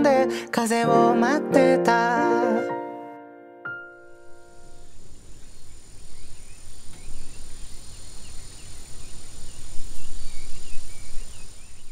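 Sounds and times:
bird chirps: 3.8 - 11.9
high insect drone: 3.9 - 11.9
low wind rumble: 4.0 - 11.9.

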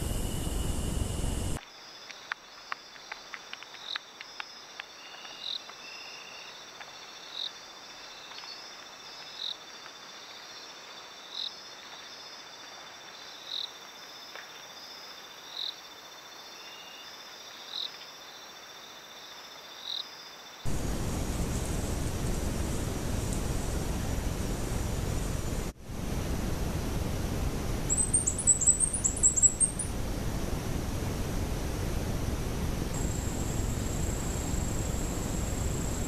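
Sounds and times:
insects trilling: 0.0 - 1.6, 19.6 - 25.7, 27.1 - 36.0.

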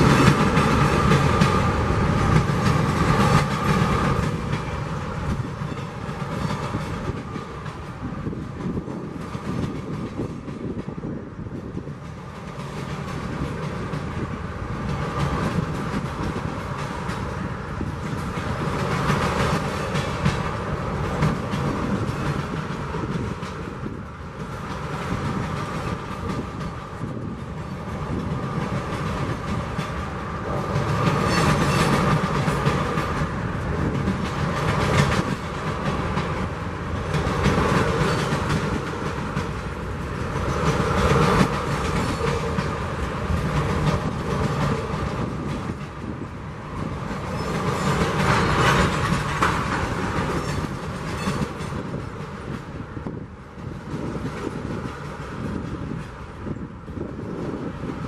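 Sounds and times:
clickety-clack over rail joints: 0.0 - 58.0
freight train wheels rumbling on rails: 0.0 - 58.0.

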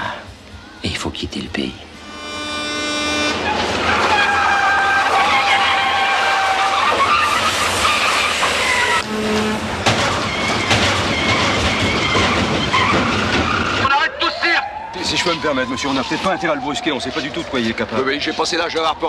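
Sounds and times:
vehicle engines running: 1.4 - 14.0
tyres screeching: 1.9 - 18.8
sharp knocks: 9.8 - 13.8.

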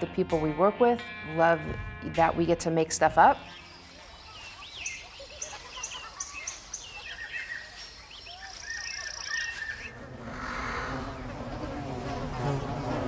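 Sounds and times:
small birds chirping: 3.0 - 13.0.

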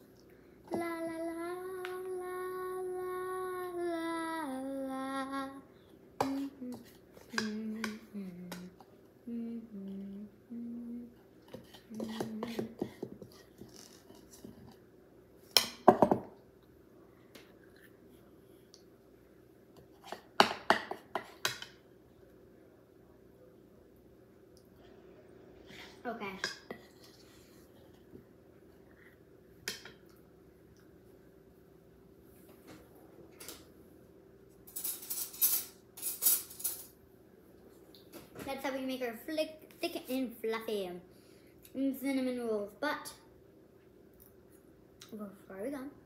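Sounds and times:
girl humming: 0.7 - 11.2.

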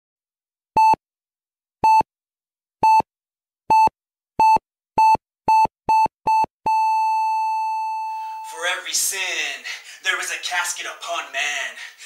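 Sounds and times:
heart monitor beeping: 0.8 - 1.0, 1.8 - 2.1, 2.8 - 3.1, 3.7 - 8.4.

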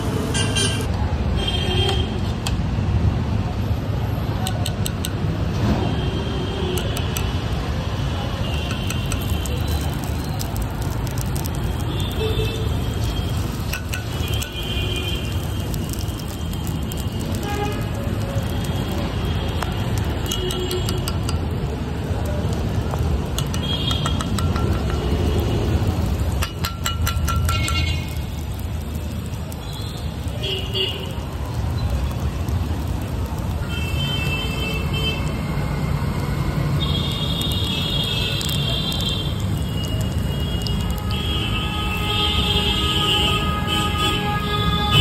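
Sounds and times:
traffic engines rumbling: 0.0 - 45.0
car horn toots: 41.1 - 45.0.

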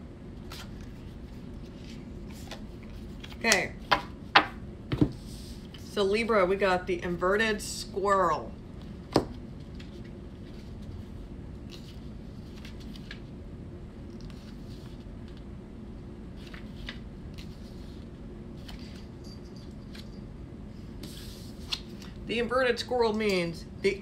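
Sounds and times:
low room hum: 0.0 - 24.0
paper pages turning: 0.4 - 3.6, 11.6 - 13.3, 14.1 - 15.4, 16.3 - 18.0, 18.6 - 19.0, 21.0 - 22.1.

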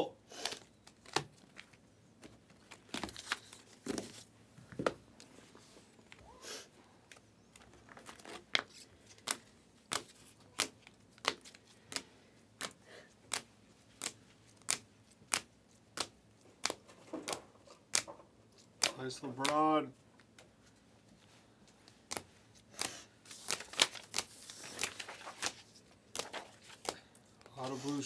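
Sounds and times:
cards snapping off a stack: 9.2 - 18.1, 18.8 - 19.6.

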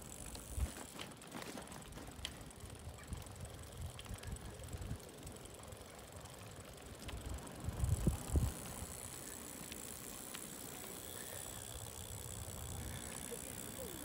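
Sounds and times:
bicycle tyre noise on wet road: 0.0 - 14.0
faint clicks: 2.2 - 4.9
wind rumbling on microphone: 7.0 - 9.1.

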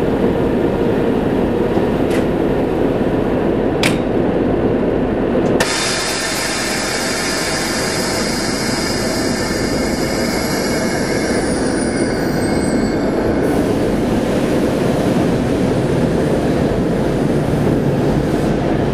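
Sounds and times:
diesel locomotive engine running: 0.0 - 18.9
high-pitched whine: 5.6 - 18.9.

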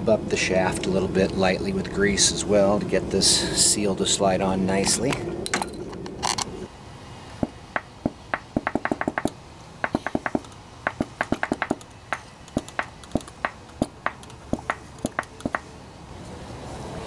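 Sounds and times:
oil can pump clicking: 8.6 - 15.6.

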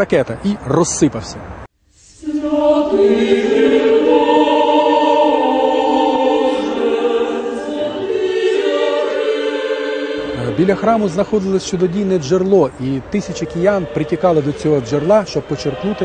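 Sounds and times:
church choir singing: 2.0 - 16.0.

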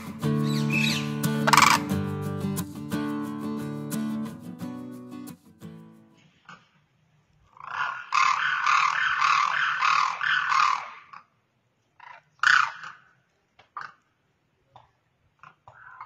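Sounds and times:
crane calling: 0.0 - 2.1, 7.5 - 11.3.

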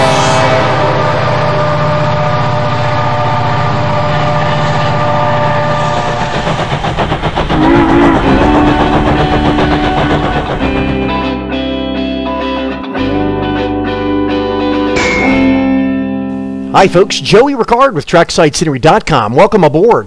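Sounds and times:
locomotive horn: 0.0 - 6.3, 7.6 - 11.5
train whistle: 0.0 - 6.7, 7.5 - 14.0
steam locomotive chuffing: 0.0 - 13.4
diesel locomotive running: 0.0 - 17.8.

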